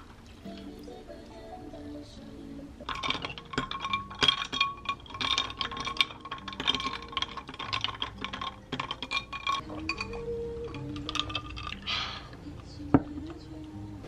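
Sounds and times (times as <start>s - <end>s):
spoon clinking ice in glass: 2.8s - 12.0s.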